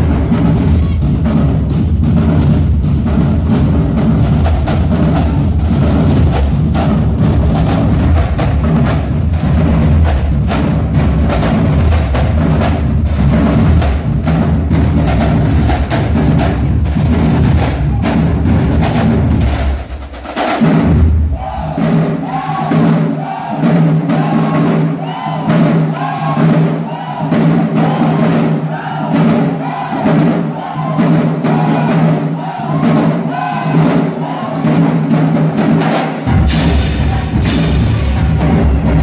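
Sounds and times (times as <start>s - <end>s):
bass drums: 0.0s - 23.0s, 34.7s - 39.0s
snare drums: 0.0s - 39.0s
crash cymbals: 36.2s - 39.0s.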